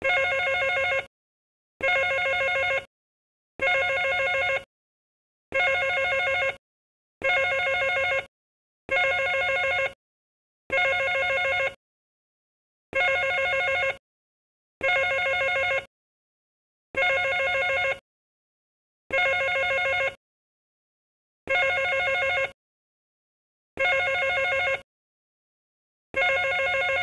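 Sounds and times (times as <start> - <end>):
telephone bell ringing: 0.0 - 1.1, 1.8 - 2.9, 3.6 - 4.7, 5.5 - 6.6, 7.2 - 8.3, 8.9 - 10.0, 10.7 - 11.8, 13.0 - 14.0, 14.8 - 15.9, 17.0 - 18.0, 19.1 - 20.2, 21.5 - 22.6, 23.8 - 24.9, 26.2 - 27.0.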